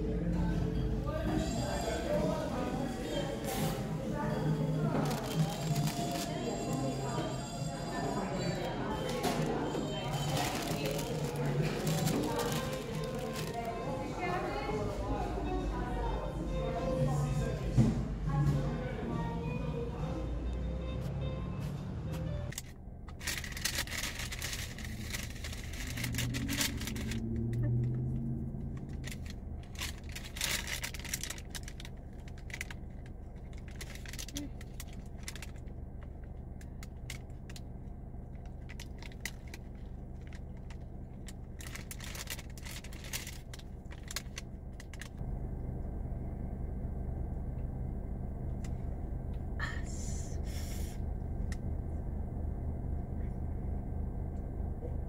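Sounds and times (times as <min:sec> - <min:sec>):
paper bag rustling: 0:04.8 - 0:06.6, 0:09.1 - 0:13.8, 0:22.6 - 0:27.3, 0:28.9 - 0:35.7, 0:41.2 - 0:45.2
car cabin rumble: 0:22.9 - 0:35.3
brief low hum: 0:24.4 - 0:33.4, 0:34.4 - 0:55.0.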